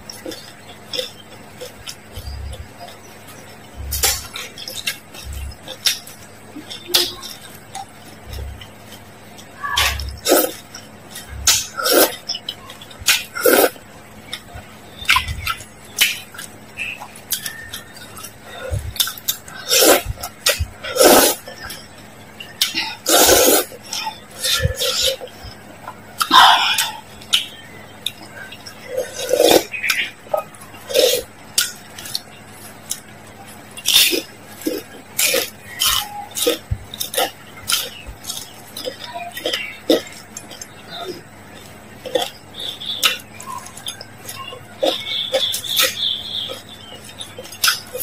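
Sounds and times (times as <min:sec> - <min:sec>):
mouth sounds: 0:00.0 - 0:48.0
slurping noodles: 0:09.8 - 0:10.7, 0:11.4 - 0:12.2, 0:13.3 - 0:13.8, 0:19.0 - 0:21.8, 0:22.6 - 0:25.3, 0:28.9 - 0:29.7
slurping soup broth: 0:19.6 - 0:21.4, 0:23.0 - 0:25.2.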